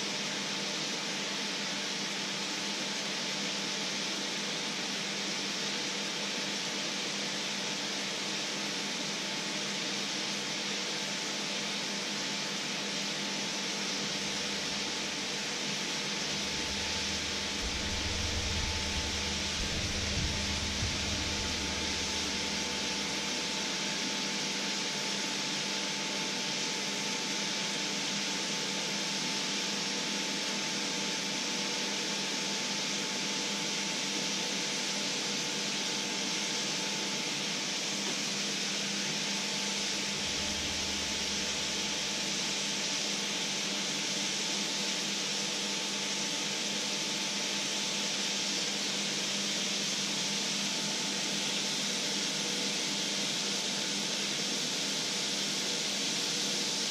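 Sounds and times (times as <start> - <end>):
faint steady hum: 13.4 - 26.4, 39.5 - 43.4.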